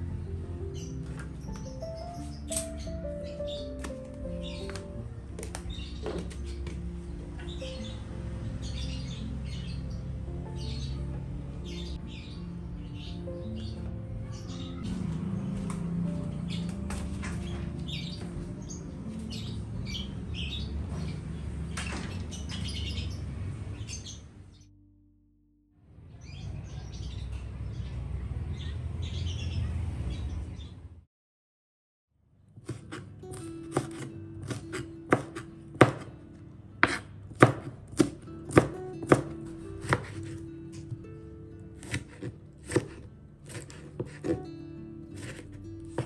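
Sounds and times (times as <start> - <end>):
small birds chirping: 0.2 - 24.7, 26.1 - 30.9.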